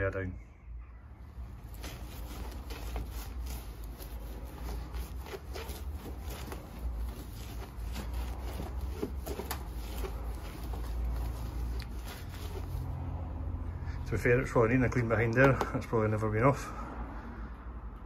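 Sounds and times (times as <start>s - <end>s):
wet cloth wiping car bumper: 1.6s - 13.0s.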